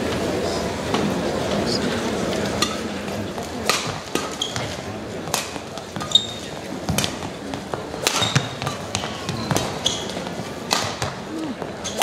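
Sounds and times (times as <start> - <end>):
rackets hitting shuttlecock: 3.4 - 12.0
shoes squeaking on court: 3.8 - 12.0.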